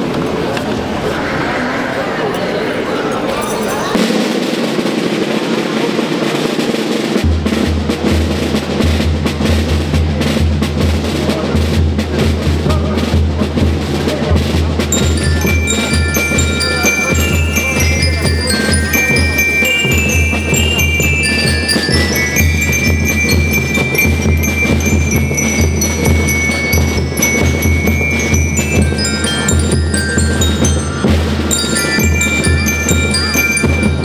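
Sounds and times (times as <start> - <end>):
bell lyres high melody: 2.9 - 4.3, 14.8 - 34.0
snare drums rolling: 4.0 - 34.0.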